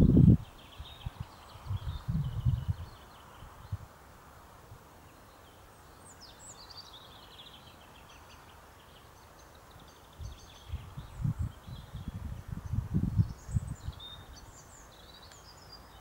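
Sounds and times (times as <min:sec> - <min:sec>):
wind rumble on microphone: 0:00.0 - 0:03.9, 0:10.1 - 0:14.6.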